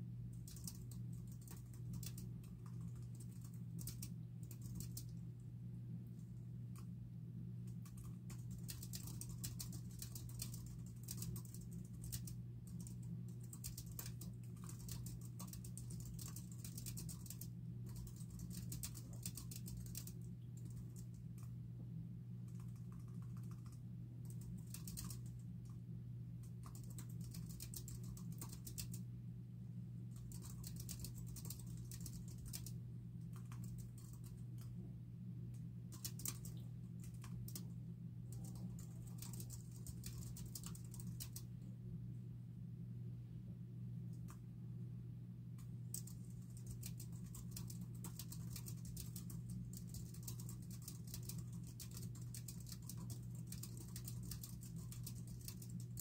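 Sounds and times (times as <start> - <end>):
steady low hum: 0.0 - 56.0
typing on keyboard: 0.4 - 5.2, 7.7 - 21.5, 22.5 - 25.8, 26.4 - 29.0, 30.2 - 34.7, 35.9 - 37.7, 38.3 - 41.5, 45.9 - 56.0.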